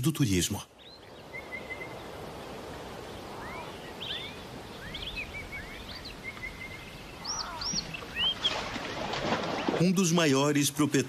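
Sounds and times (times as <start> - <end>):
outdoor background hiss: 0.0 - 11.0
birds whistling and chirping: 0.8 - 2.5, 3.1 - 8.7.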